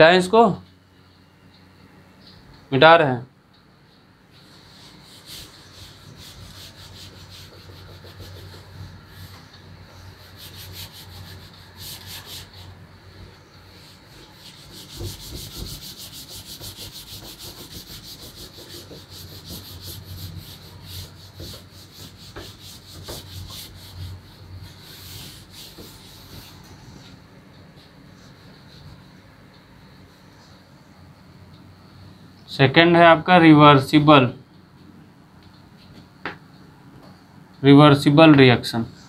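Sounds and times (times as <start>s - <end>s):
cloth scrubbing a chalkboard: 4.4s - 12.8s, 13.7s - 27.2s.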